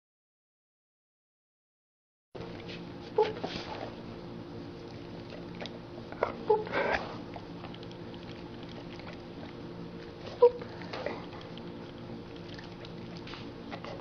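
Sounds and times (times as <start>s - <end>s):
faint steady hum: 2.4s - 14.0s
dog sniffing: 2.6s - 4.0s, 5.0s - 14.0s.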